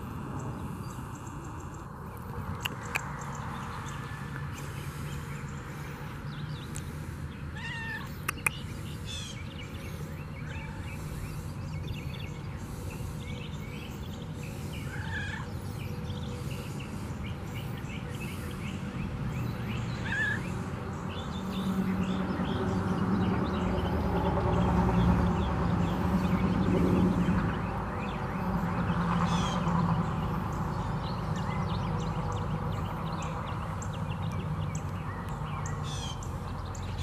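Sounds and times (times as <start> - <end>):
cat meowing: 7.6 - 8.1.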